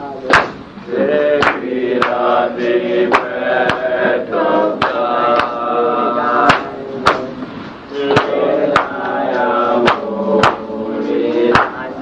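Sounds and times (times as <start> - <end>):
chanted singing: 0.0 - 12.0
sharp percussive strikes: 0.3 - 4.2, 6.4 - 10.8, 11.5 - 11.9.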